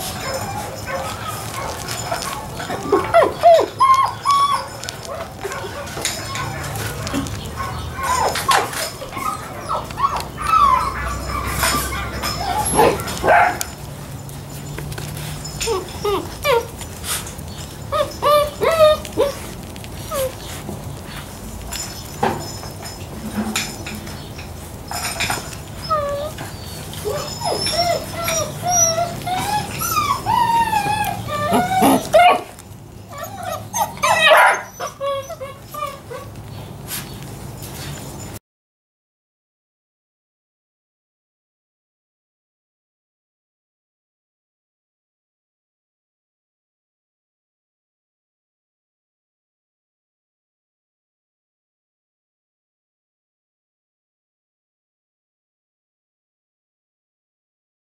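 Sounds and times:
puppies yipping and barking: 0.0 - 38.4.

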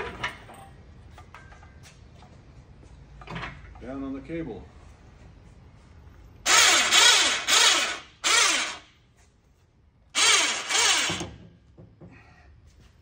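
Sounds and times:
electric winch motor whine: 6.5 - 8.9, 10.2 - 11.4.

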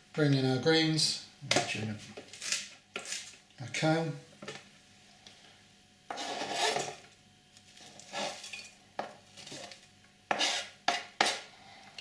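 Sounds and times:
leaves brushing into a saucepan: 7.7 - 8.7.

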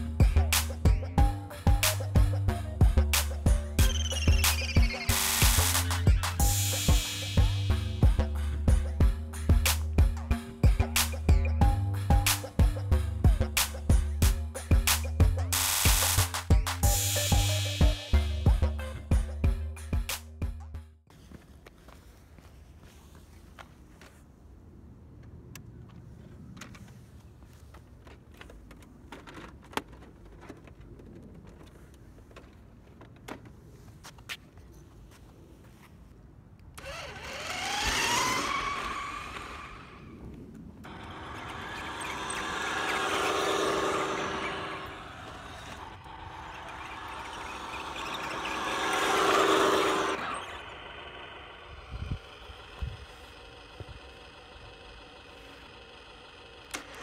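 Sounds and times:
toy car electric motor whine: 3.8 - 7.8, 16.8 - 18.4, 36.8 - 40.1, 40.8 - 57.0
tyres hissing on asphalt: 15.6 - 18.4.

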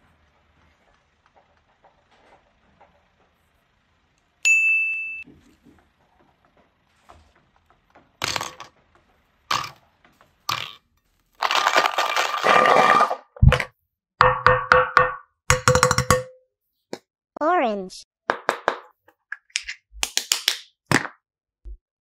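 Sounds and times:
high bell-like ding: 4.4 - 5.3
clattering: 5.3 - 13.7.

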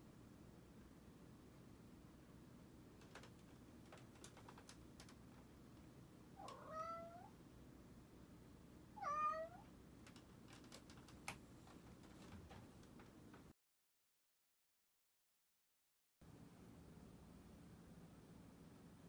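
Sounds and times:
faint clicks: 3.0 - 5.5, 10.0 - 13.5
cat meowing: 6.4 - 7.4, 9.0 - 9.7.

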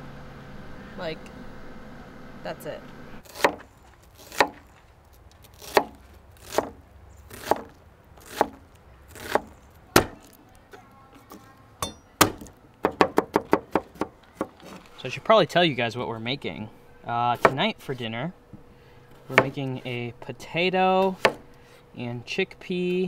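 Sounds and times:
knife chopping on plastic board: 9.2 - 10.3, 19.3 - 19.6, 21.1 - 21.4.

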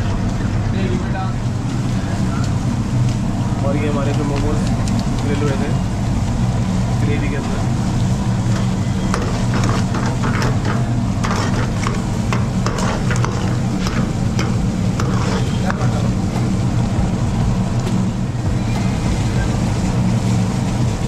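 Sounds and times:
steady low hum: 0.0 - 21.0
metal ladle scraping a pan: 8.2 - 16.9.

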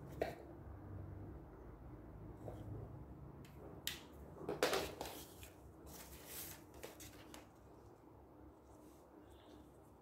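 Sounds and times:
paper rustling and sliding on table: 4.9 - 7.5.

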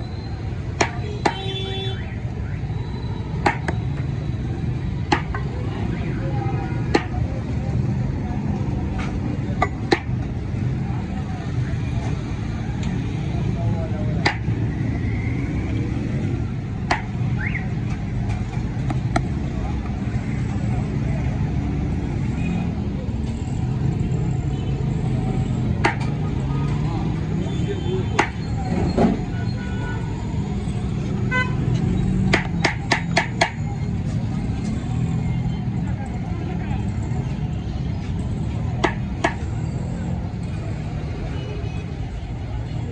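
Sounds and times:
street traffic rumble: 0.0 - 42.9
sharp knocks: 3.4 - 3.8, 25.8 - 26.1, 28.2 - 28.4, 32.3 - 33.6.

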